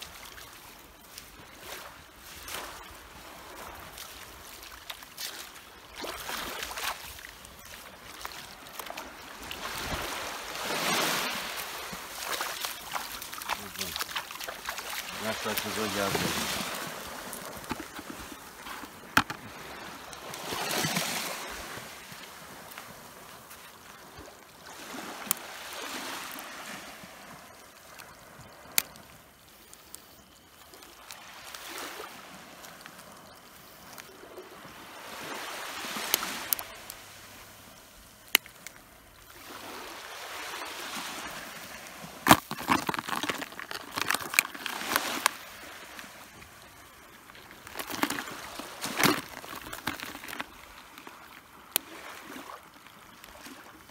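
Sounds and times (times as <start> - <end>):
water sloshing and trickling: 0.0 - 53.9
landing net and bucket clicks: 42.2 - 45.4, 47.6 - 51.1.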